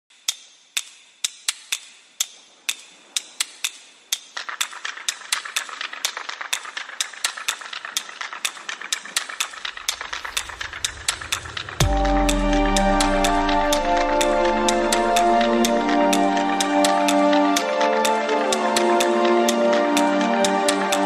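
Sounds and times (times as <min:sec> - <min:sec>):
fast dense clicking: 0:00.2 - 0:21.0
sharp clicks: 0:00.2 - 0:21.0
low hum: 0:09.8 - 0:16.7.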